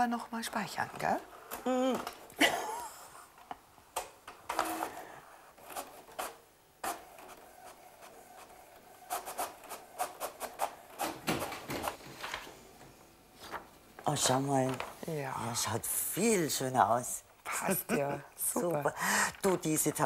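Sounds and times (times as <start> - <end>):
inkjet printer humming: 4.5 - 12.0.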